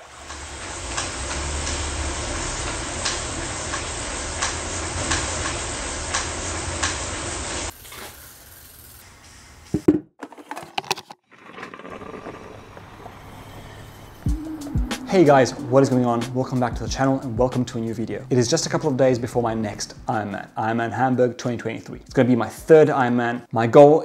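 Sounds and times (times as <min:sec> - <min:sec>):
bike trainer whirring: 0:00.0 - 0:09.9.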